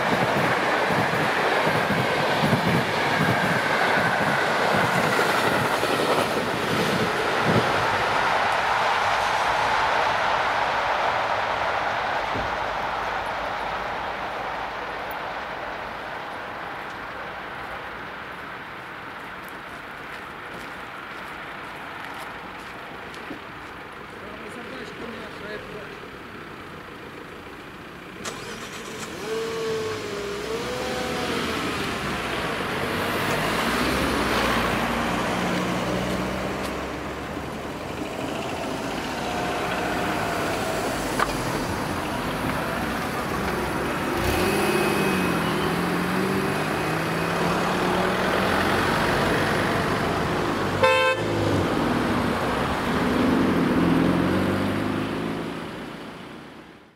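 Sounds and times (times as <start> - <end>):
cars passing close by: 0.0 - 56.9
car horn beep: 50.8 - 51.3.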